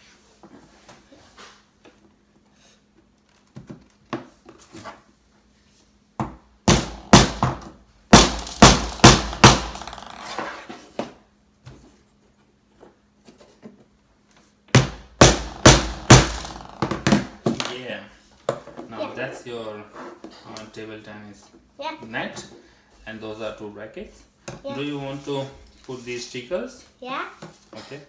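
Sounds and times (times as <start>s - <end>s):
hammer striking nails into wood: 6.6s - 10.0s, 14.7s - 17.7s.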